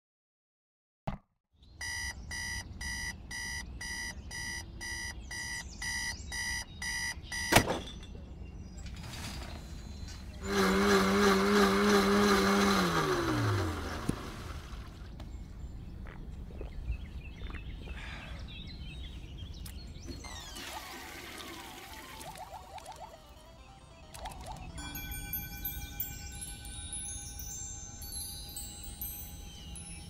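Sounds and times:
high electronic beeps: 1.8 - 7.6.

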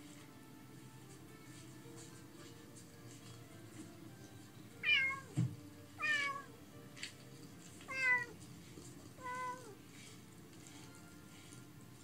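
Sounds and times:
cat meowing: 4.8 - 5.3, 6.0 - 6.5, 7.9 - 8.4, 9.2 - 9.8.

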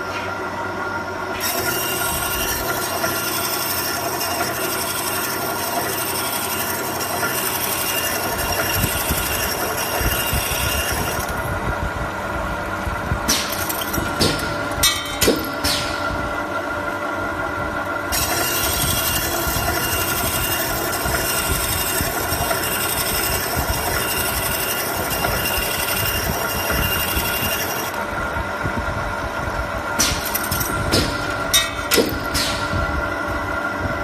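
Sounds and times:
sawing machine motor hum: 0.0 - 34.0
sharp metallic clanks: 13.3 - 16.2, 30.0 - 32.8.

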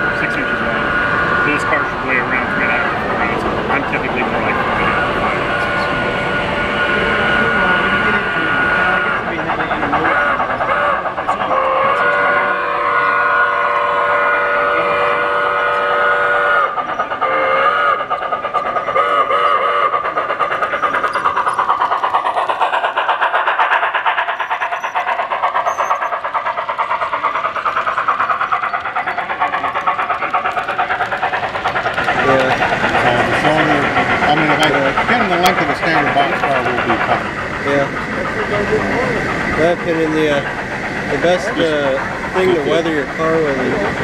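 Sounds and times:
wheels clicking on track: 0.0 - 44.0
model train whistle: 10.7 - 18.0, 19.0 - 19.9.

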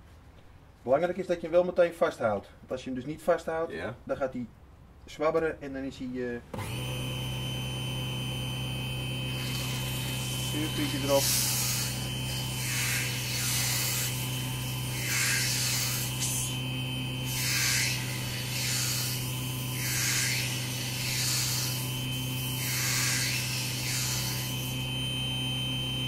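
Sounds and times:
lathe motor humming: 6.5 - 26.0
sandpaper rasping on wood: 9.4 - 16.6, 17.2 - 24.7.

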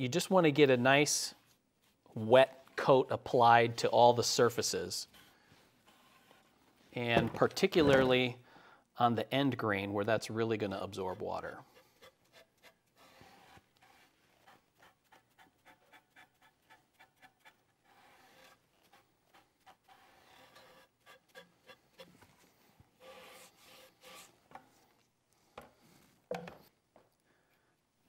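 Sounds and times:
foam brush rubbing on wood: 11.6 - 24.4.

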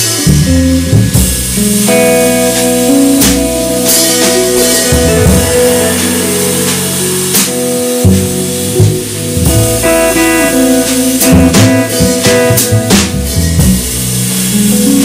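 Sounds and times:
sharp cymbal strokes: 0.0 - 14.5
electric guitar melody: 0.0 - 15.0
light drumming: 0.0 - 15.0
walking double bass: 0.0 - 15.0.

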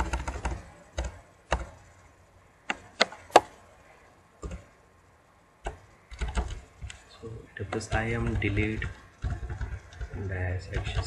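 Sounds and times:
keyboard and mouse clicking: 0.0 - 1.9, 2.6 - 3.5, 4.4 - 4.7, 5.6 - 7.0, 7.6 - 11.0.

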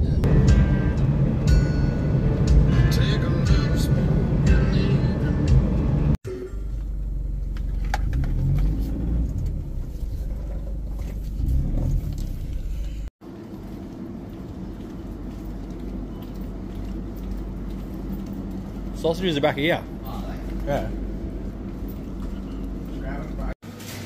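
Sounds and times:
refrigerated display cases humming: 0.0 - 11.7, 12.4 - 24.0
vehicle engine idling: 0.0 - 13.1.

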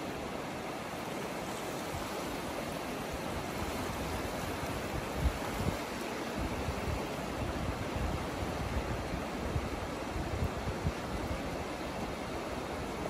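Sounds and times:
waves washing on shore: 0.0 - 13.0
wind buffeting microphone: 3.1 - 13.0.

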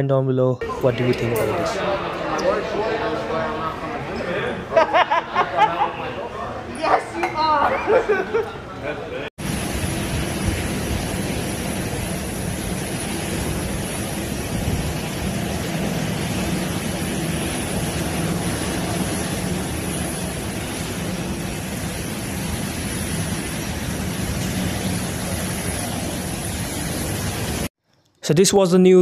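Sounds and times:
torrential rain and floodwater roar: 9.4 - 27.7.

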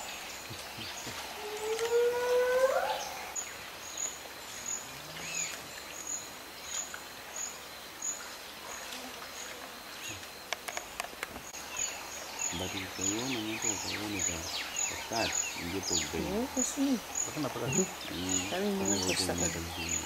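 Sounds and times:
wild animal rising call: 1.4 - 3.3.

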